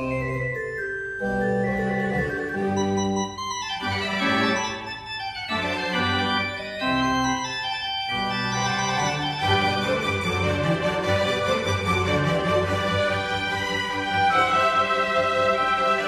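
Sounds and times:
organ playing held chords: 0.0s - 12.2s.

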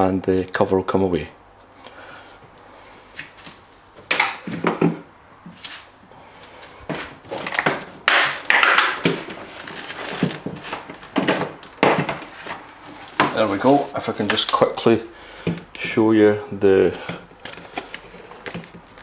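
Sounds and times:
plastic cover knocking and creaking: 4.1s - 5.1s, 6.9s - 14.8s, 15.4s - 16.0s, 17.0s - 19.0s.

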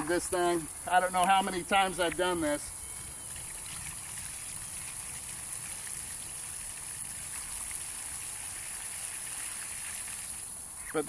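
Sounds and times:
water pouring and splashing: 0.0s - 10.8s.

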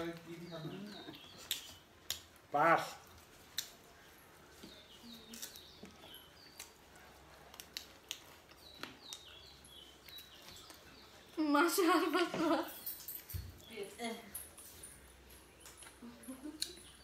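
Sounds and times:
bird chirping: 0.0s - 17.0s
mouth clicks and smacks chewing: 1.0s - 11.4s, 15.5s - 17.0s.

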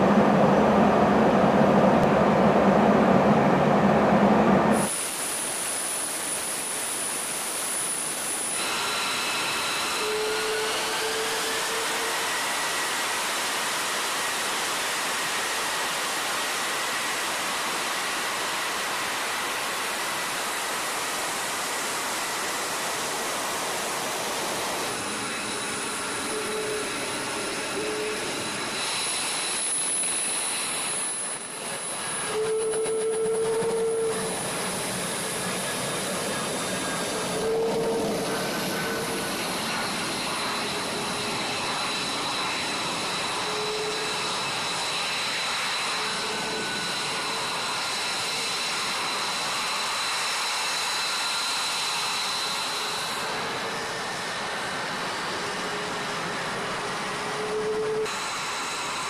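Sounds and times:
jet engine turbine whine: 0.0s - 59.0s
jet engine rushing noise: 19.9s - 52.5s.

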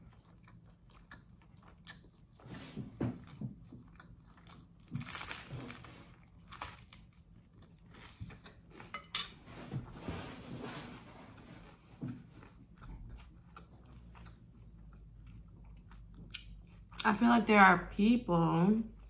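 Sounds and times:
crunchy bread bites and chewing: 0.0s - 8.9s, 12.2s - 17.0s.

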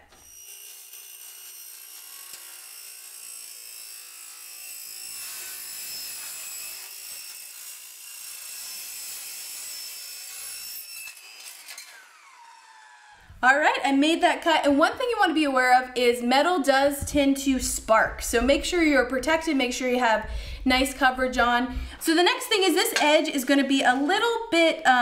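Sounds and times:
circular saw cutting sheet metal: 0.0s - 13.3s.

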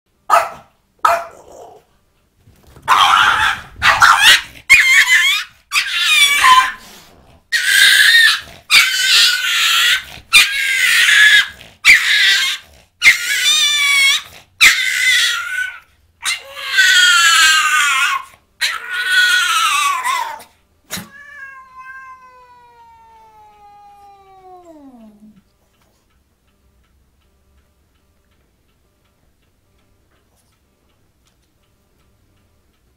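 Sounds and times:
cat yowling: 2.9s - 6.8s, 7.5s - 25.4s.

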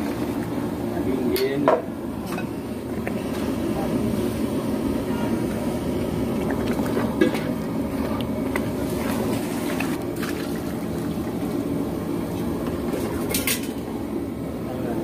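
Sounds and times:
low rumble of cooking pot: 0.0s - 14.0s
liquid sloshing: 6.3s - 11.5s.

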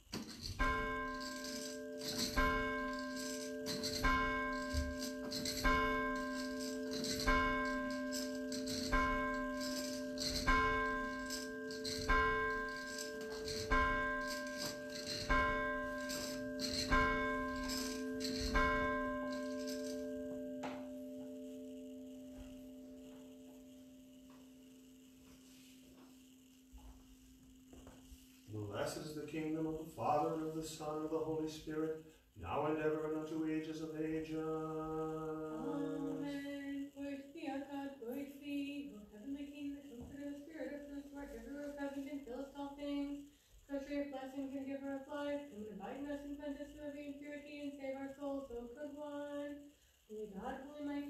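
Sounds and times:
steady low hum: 0.0s - 51.0s
bell ringing: 0.1s - 24.0s.

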